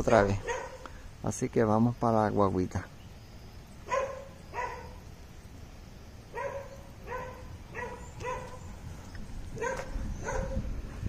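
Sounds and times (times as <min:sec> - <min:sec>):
dog barking: 0:00.4 - 0:00.9, 0:03.9 - 0:05.0, 0:06.3 - 0:08.7, 0:09.6 - 0:10.7.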